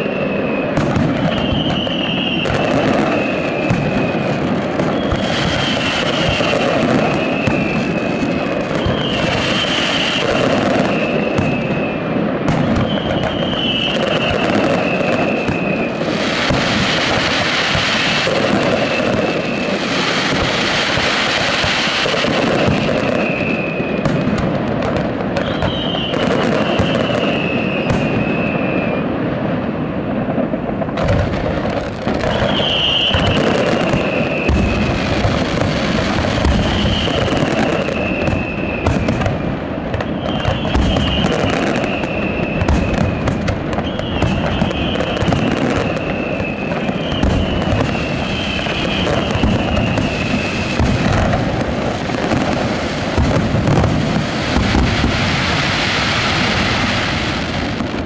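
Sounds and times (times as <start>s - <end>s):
fireworks bangs and crackles: 0.0s - 58.0s.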